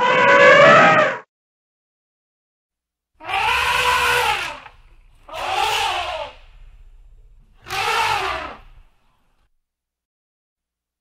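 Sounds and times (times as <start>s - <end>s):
elephant trumpeting: 3.2s - 9.4s.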